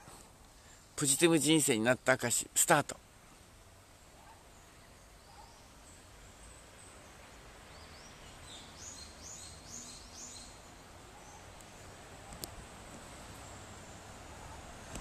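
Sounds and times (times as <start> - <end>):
faint background noise: 0.0 - 15.0
bird chirping: 4.2 - 12.4.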